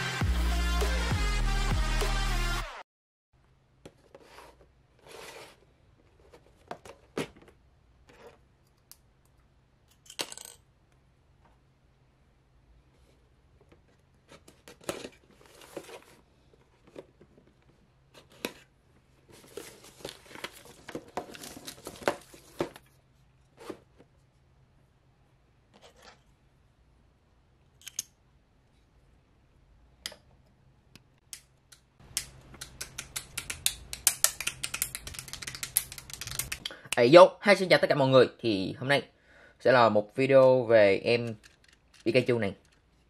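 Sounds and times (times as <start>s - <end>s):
cardboard box rustling: 14.4s - 22.9s
sharp plastic clicks: 31.0s - 36.8s.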